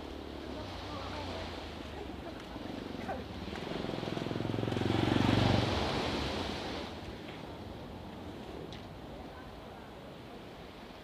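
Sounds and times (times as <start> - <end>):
waves on the shore: 0.0 - 11.0
vehicle engine passing by: 3.5 - 6.8.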